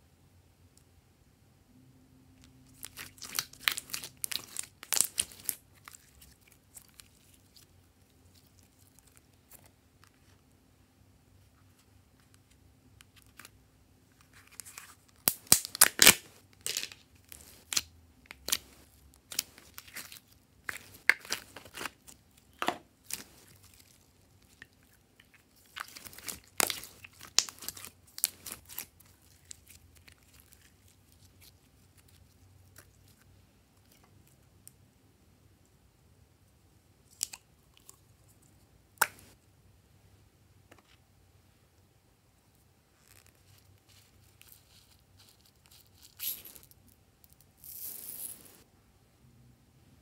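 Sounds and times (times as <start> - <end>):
slime crackling and popping: 2.8 - 7.6, 14.6 - 32.1.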